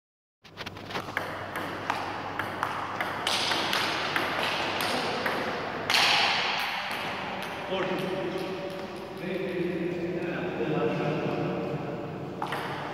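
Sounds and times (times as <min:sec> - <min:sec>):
table tennis ball clicking: 0:01.0 - 0:07.6.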